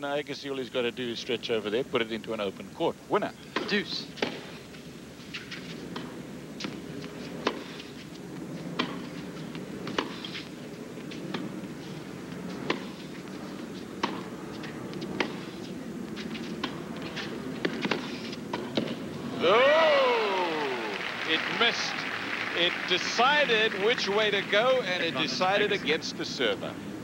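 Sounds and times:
crowd murmuring: 19.2 - 26.1.

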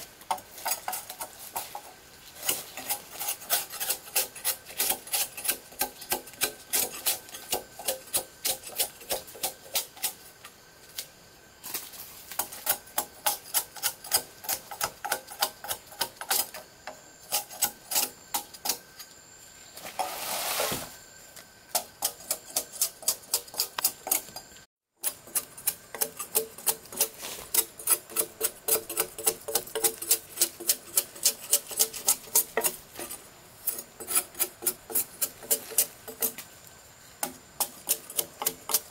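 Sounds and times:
rasping scrape: 0.3 - 10.2, 25.0 - 36.4.

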